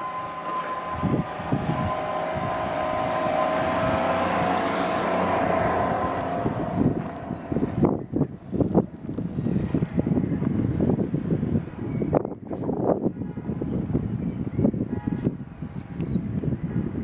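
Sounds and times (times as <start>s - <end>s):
vehicle passing: 0.0s - 10.2s
wind buffeting microphone: 0.0s - 17.0s.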